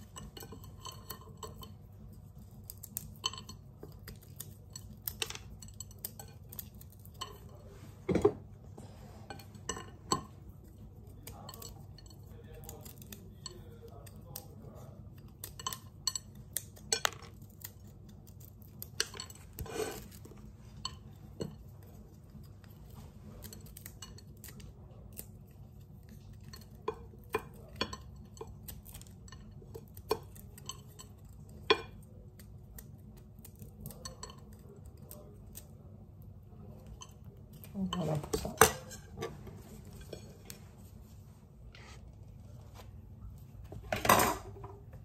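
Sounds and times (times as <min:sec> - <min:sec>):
kitchenware clicking and clinking: 0:00.0 - 0:14.6, 0:15.2 - 0:32.5, 0:36.6 - 0:40.6, 0:43.6 - 0:45.0
walnuts breaking: 0:15.4 - 0:19.3.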